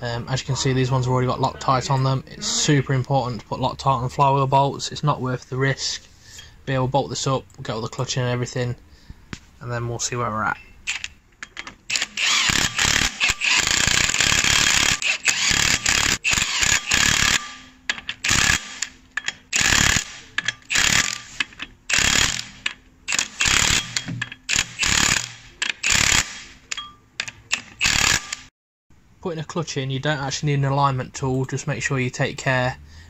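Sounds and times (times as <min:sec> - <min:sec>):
impact wrench running: 0:10.9 - 0:26.6, 0:27.2 - 0:28.5.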